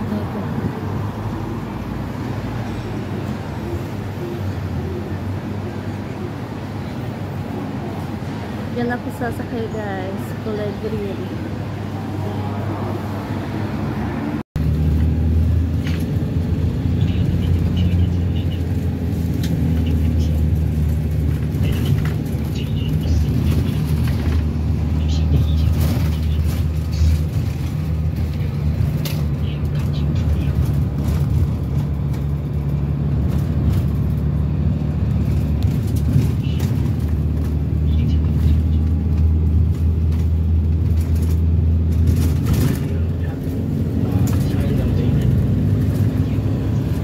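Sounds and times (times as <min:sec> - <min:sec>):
engine and road rumble: 0:00.0 - 0:47.0.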